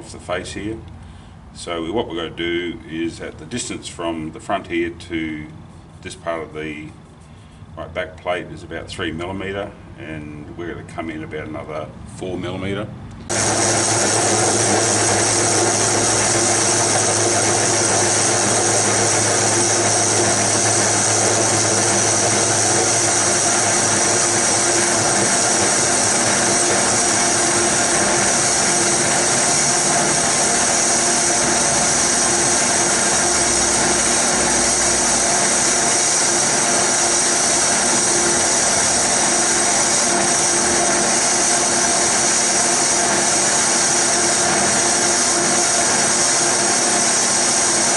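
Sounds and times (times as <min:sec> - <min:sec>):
metal lathe whining: 0:13.3 - 0:47.9.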